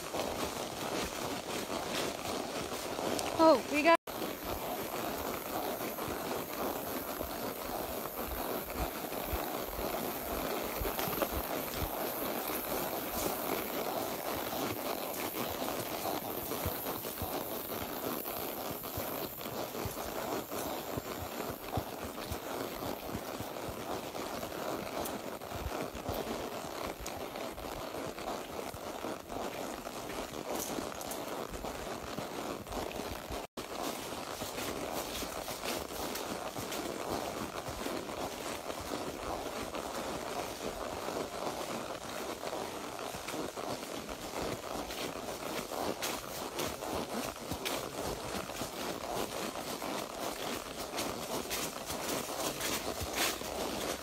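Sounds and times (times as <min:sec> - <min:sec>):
horse hooves on soft ground: 0:00.0 - 0:54.0.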